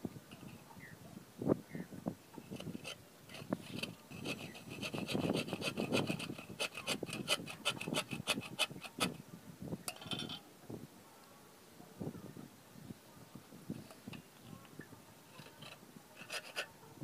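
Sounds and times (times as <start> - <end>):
saw cutting bamboo: 2.5 - 9.1, 15.5 - 16.7.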